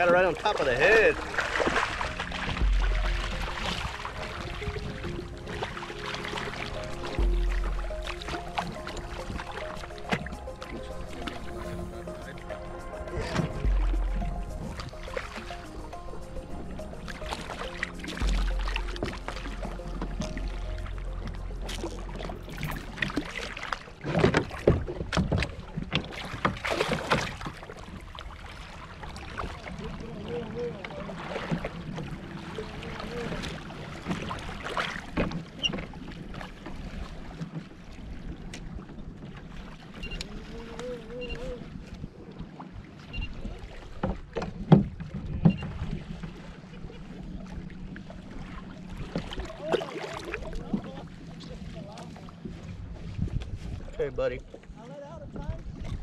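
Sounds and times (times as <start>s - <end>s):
water splashing against kayak hull: 0.0s - 56.0s
fishing rod knocking on kayak: 16.7s - 23.2s.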